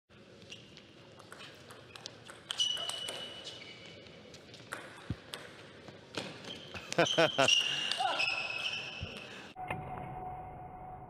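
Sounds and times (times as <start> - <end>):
shoes squeaking on floor: 0.4 - 5.2, 6.2 - 9.3.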